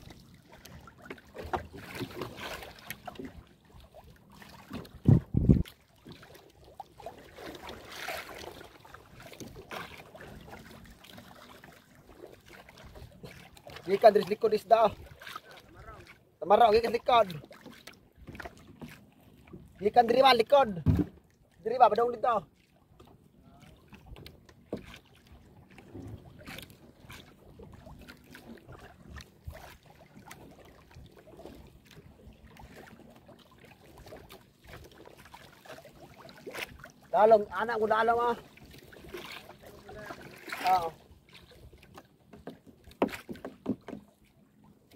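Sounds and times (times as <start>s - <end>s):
water lapping against boat: 0.0s - 44.9s
knocks against hull: 1.0s - 2.4s, 4.6s - 6.2s, 20.8s - 21.3s, 25.7s - 26.6s, 41.9s - 44.2s.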